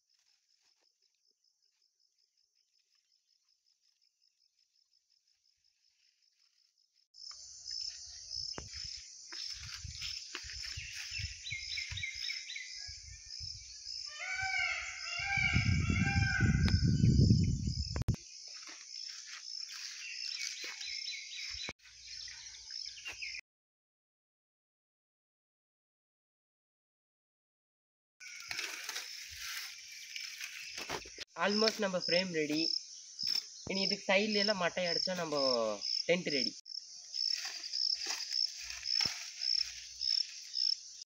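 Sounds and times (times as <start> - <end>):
insects chirring: 0.0 - 23.4, 28.2 - 41.0
birds calling: 7.8 - 17.7, 19.0 - 23.4
low rumbling microphone noise: 15.4 - 18.2.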